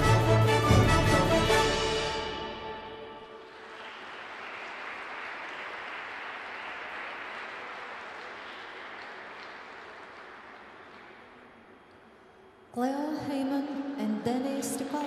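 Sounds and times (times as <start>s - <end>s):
audience applauding: 3.2s - 12.2s.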